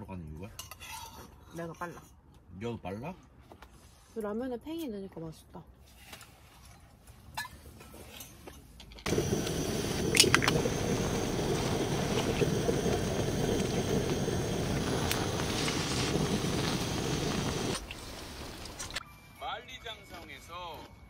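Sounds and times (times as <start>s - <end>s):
pan simmering with low rushing: 9.0s - 19.0s.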